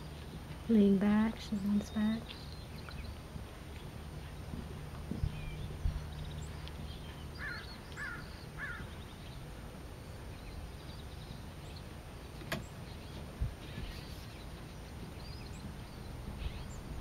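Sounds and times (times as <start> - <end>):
low steady rumble: 0.0 - 17.0
bird calling: 5.2 - 9.2.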